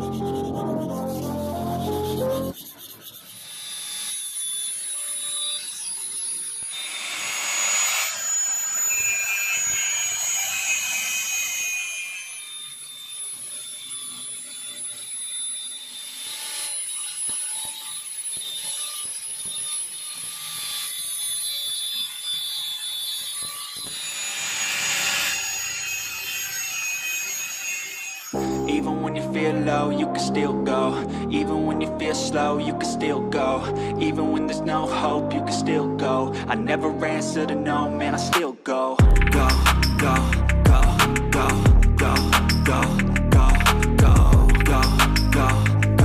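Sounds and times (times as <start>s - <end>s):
angle grinder sanding metal: 0.0s - 29.5s, 39.2s - 46.0s.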